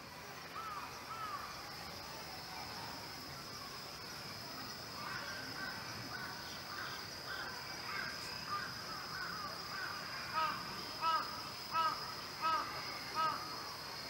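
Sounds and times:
crows cawing: 7.3 - 13.4.

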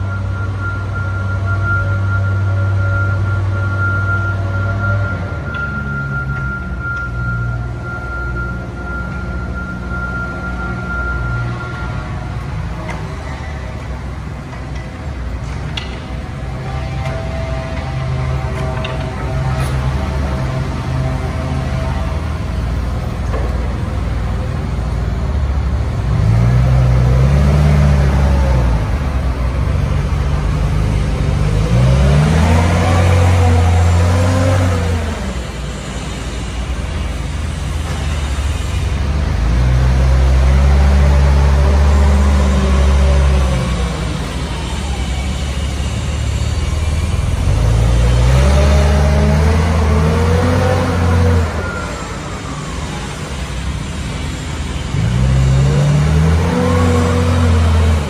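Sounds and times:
forklift engine revving: 16.2 - 58.0.

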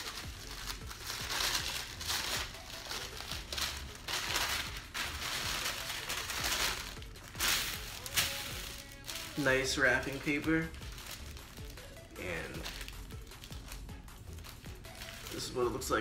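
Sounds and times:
wrapping paper crinkling: 0.0 - 16.0.

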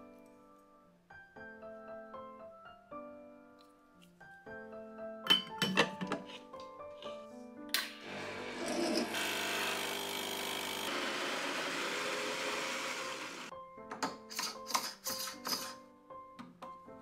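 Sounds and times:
electric coffee grinder grinding: 8.0 - 13.5.

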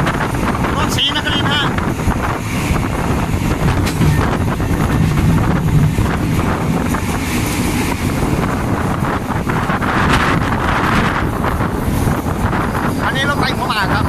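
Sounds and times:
train rumbling along track: 0.0 - 14.0
wind buffeting microphone: 0.0 - 14.0.

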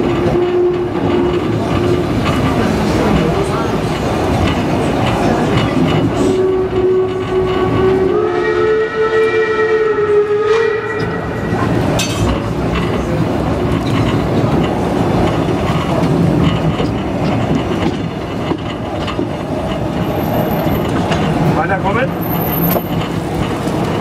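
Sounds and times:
train rolling along track: 0.0 - 24.0
steam locomotive whistle: 6.2 - 11.7.

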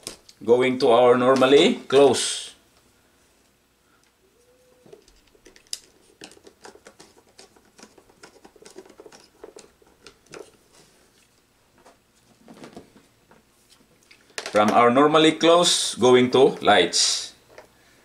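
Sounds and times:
wire being handled: 4.8 - 14.6.

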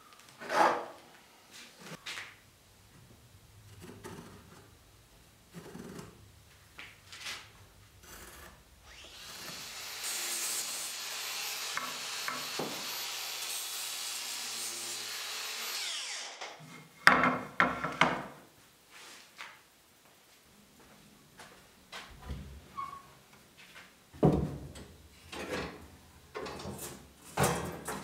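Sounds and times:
power tool cutting wood: 8.0 - 16.6.

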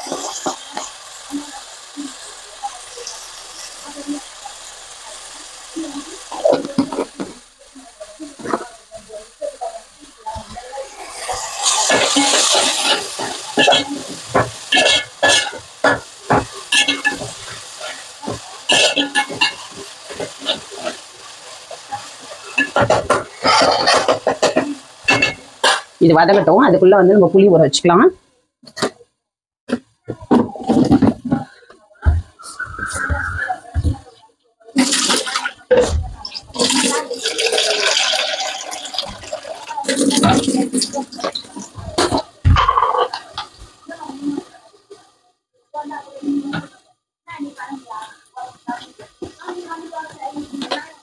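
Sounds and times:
curry sizzling in hot oil: 0.0 - 26.8, 34.7 - 44.8
metal ladle scraping pan: 11.0 - 14.0, 18.7 - 21.0, 22.5 - 25.9
water pouring into a bowl: 34.8 - 42.0.

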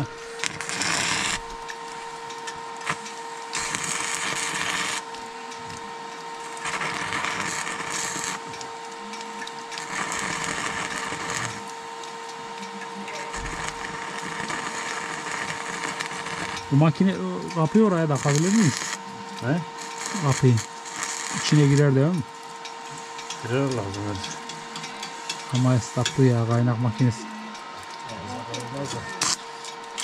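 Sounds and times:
welding arc crackling: 0.0 - 30.0
welding machine hum: 0.0 - 30.0
person talking: 16.7 - 18.8, 21.4 - 22.2, 23.4 - 24.5, 25.5 - 27.4, 28.1 - 29.2.

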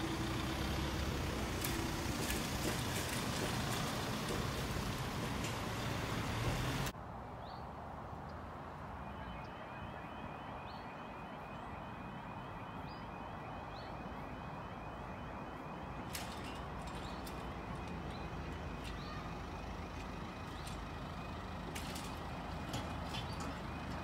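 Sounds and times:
warbling crossing alarm: 8.9 - 24.0.

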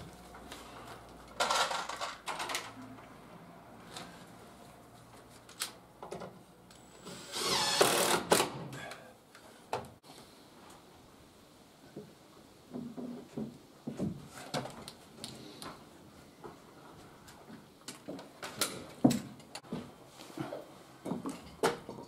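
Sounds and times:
cordless drill drilling timber: 7.0 - 8.6.

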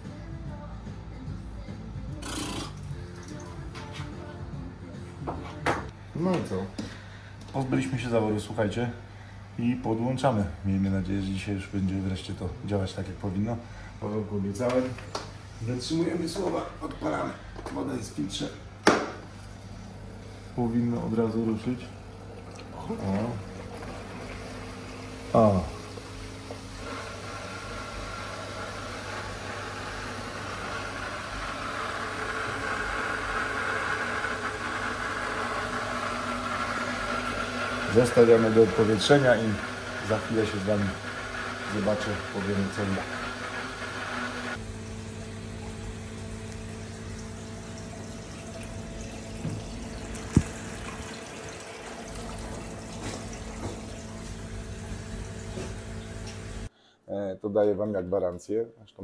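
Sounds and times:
filter pump hum: 0.0 - 56.9
low pump hum: 18.6 - 29.0, 44.6 - 56.7
water rushing and bubbling: 44.9 - 56.2.

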